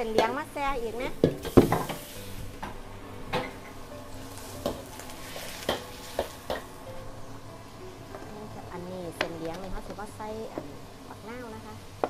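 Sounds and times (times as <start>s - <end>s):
noodles sizzling in wok: 0.0s - 12.0s
spatula clanking against wok: 5.6s - 6.8s.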